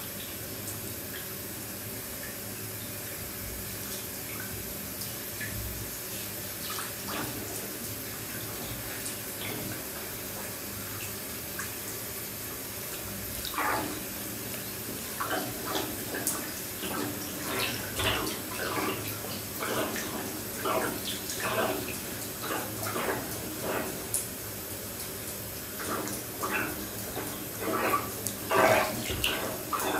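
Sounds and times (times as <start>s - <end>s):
bath tap running: 3.0s - 29.9s
water sloshing in bathtub: 3.4s - 29.9s.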